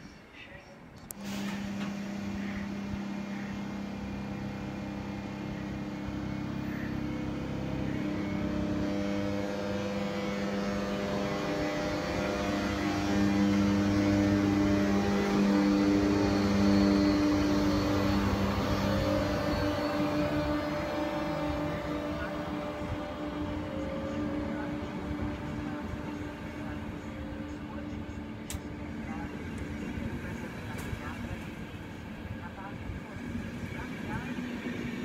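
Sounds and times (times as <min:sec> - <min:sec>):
electric locomotive humming: 0:00.0 - 0:35.0.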